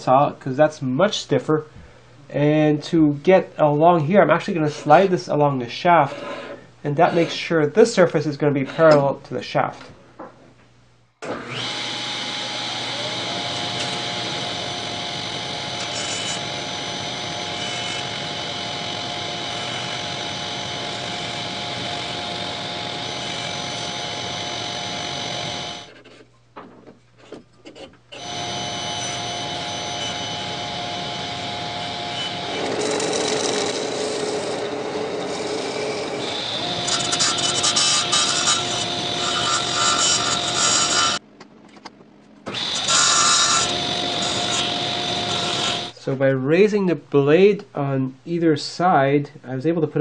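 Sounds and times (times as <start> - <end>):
table saw cutting wood: 11.2 - 26.0, 28.2 - 41.2, 42.5 - 46.0
belt sander grinding: 11.4 - 26.0, 27.7 - 41.2, 42.5 - 46.0.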